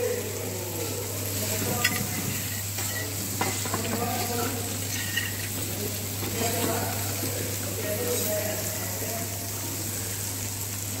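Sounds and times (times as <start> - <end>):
food sizzling on a griddle: 0.0 - 11.0
metal utensils clicking on steel: 1.8 - 5.7.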